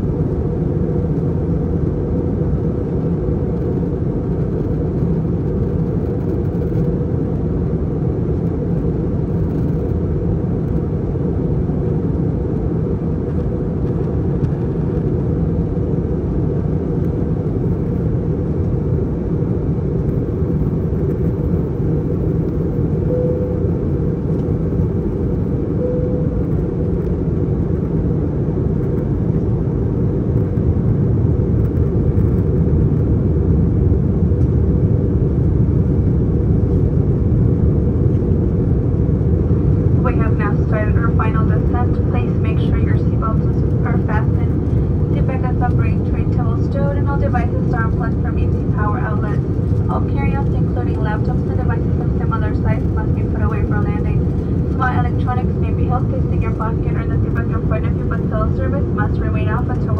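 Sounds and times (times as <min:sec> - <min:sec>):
airflow rush in airliner cabin: 0:00.0 - 0:59.9
engine drone: 0:00.0 - 0:59.9.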